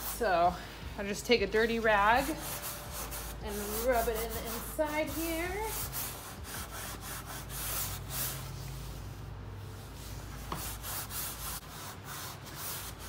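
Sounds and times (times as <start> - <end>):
cloth rag rubbing wood: 1.7 - 9.2.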